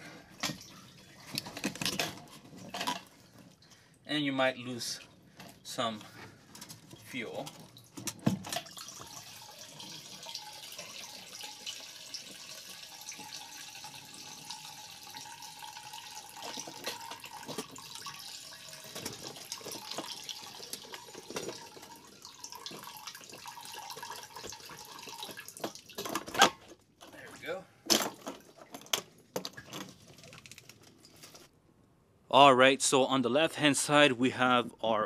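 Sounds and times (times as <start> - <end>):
gasoline trickling into tank: 5.1 - 26.4.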